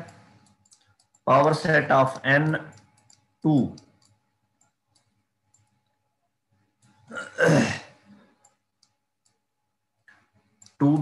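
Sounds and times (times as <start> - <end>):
faint clicks: 0.0 - 7.1, 8.3 - 9.4, 10.0 - 11.0
throaty vocal sound: 7.1 - 8.0.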